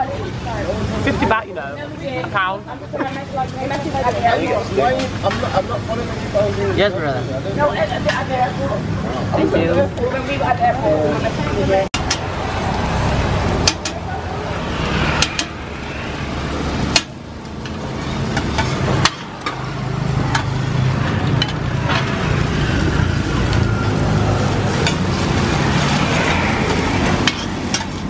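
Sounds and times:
food frying on griddle: 0:00.0 - 0:28.0
low rumble: 0:12.0 - 0:18.0
metal spatulas scraping griddle: 0:15.0 - 0:15.6, 0:16.7 - 0:22.3, 0:24.6 - 0:28.0.

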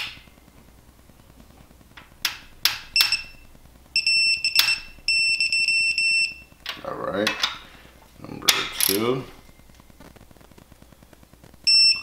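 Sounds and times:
electronic beep: 0:03.0 - 0:06.5, 0:11.6 - 0:12.0.

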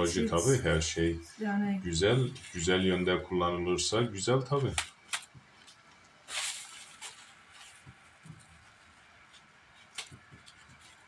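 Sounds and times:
rustling of leaves being handled: 0:01.9 - 0:03.2, 0:04.5 - 0:11.0.

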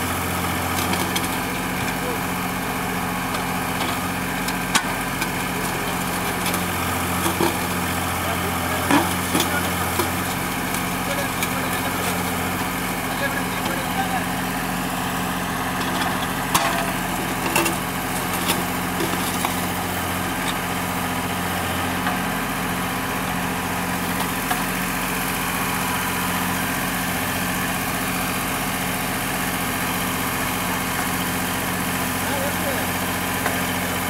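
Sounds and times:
backhoe digging soil: 0:00.0 - 0:34.0
tractor diesel engine running: 0:00.0 - 0:34.0.

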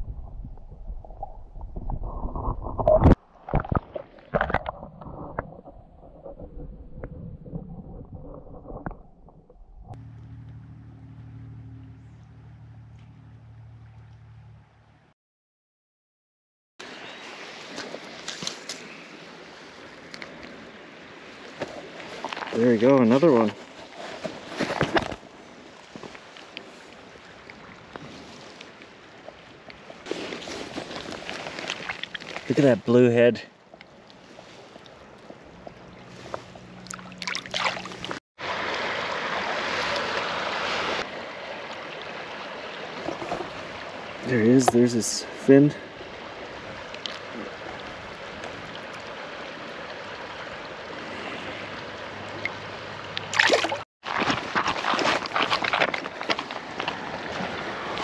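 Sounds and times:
creek water rushing: 0:16.8 - 0:23.9, 0:33.9 - 0:54.6, 0:55.2 - 0:58.0.

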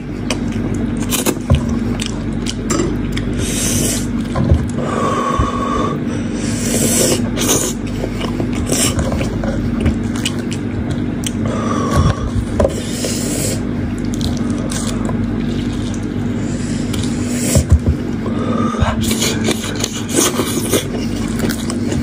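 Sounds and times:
steady low hum: 0:00.0 - 0:22.0
chewing: 0:00.1 - 0:04.8, 0:06.7 - 0:11.4, 0:12.0 - 0:18.1, 0:18.8 - 0:22.0
meat tearing and squelching: 0:07.2 - 0:11.4, 0:13.6 - 0:17.4, 0:19.0 - 0:22.0.

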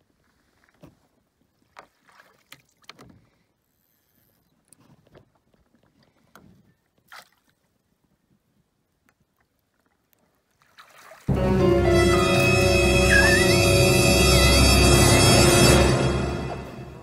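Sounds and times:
loud dramatic music: 0:11.3 - 0:17.0.

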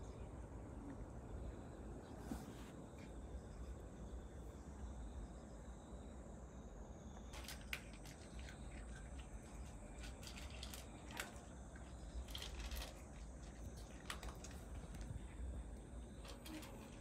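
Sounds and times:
cat crunching dry food: 0:07.3 - 0:17.0.

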